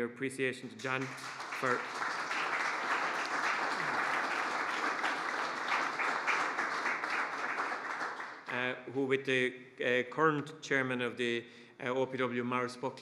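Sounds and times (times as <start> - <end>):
audience applauding: 0.8 - 8.6.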